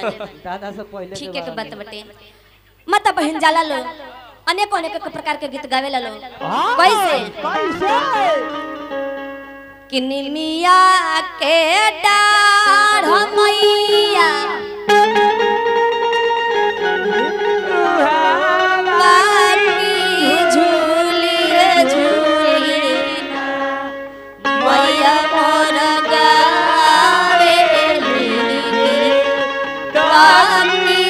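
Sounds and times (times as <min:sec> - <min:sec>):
woman singing folk song: 0:09.9 - 0:14.7, 0:18.9 - 0:23.4.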